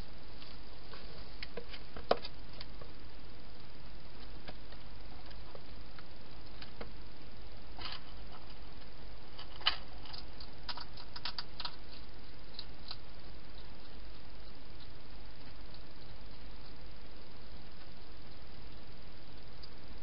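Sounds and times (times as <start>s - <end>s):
low hum and hiss: 0.0s - 20.0s
hedgehog crunching food: 7.8s - 16.9s.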